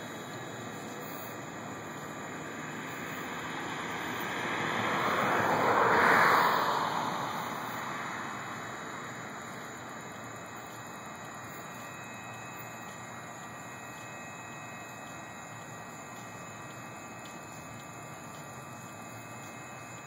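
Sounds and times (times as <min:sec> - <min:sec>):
steady background hiss: 0:00.0 - 0:20.0
car passing by: 0:02.4 - 0:09.9.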